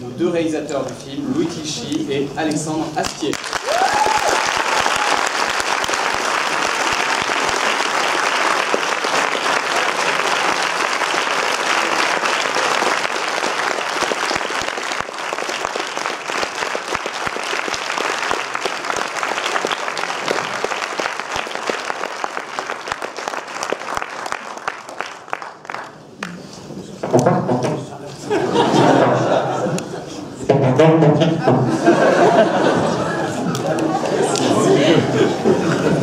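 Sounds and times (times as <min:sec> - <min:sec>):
audience applauding: 0:03.0 - 0:26.5.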